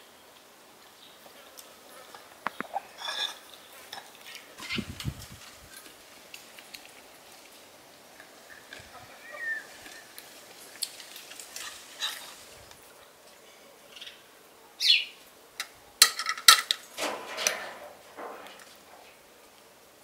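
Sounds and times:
scraping and clatter of dishes: 0:02.9 - 0:04.8, 0:16.0 - 0:18.8
bird chirp sliding downward: 0:09.2 - 0:10.1.

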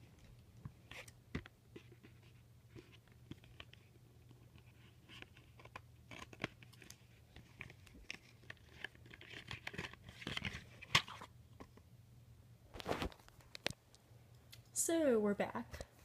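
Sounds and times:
cardboard packaging crinkling: 0:02.0 - 0:11.3.

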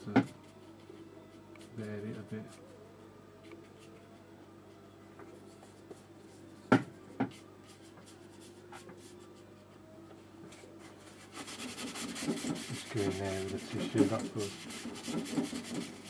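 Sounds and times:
paintbrush scratching on paper: 0:10.9 - 0:16.0.

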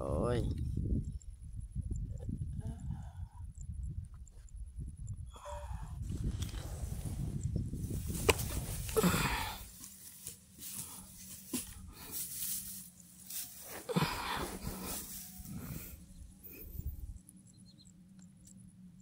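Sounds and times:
rustling and handling noise: 0:07.8 - 0:16.6.

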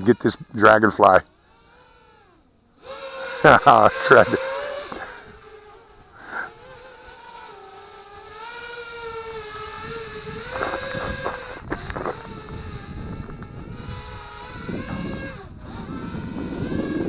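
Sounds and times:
drone motors whining: 0:00.0 - 0:17.0
wind buffeting microphone: 0:08.1 - 0:17.0.

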